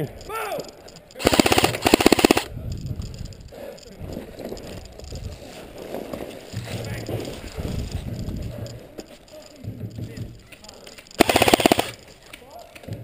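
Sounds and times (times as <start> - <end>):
airsoft rifle full-auto burst: 1.2 - 2.5, 11.2 - 12.1.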